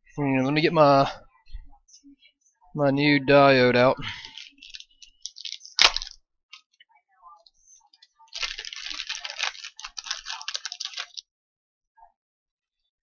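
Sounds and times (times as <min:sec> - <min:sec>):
packaging crinkling and rustling: 0:04.2 - 0:06.6, 0:08.3 - 0:11.2.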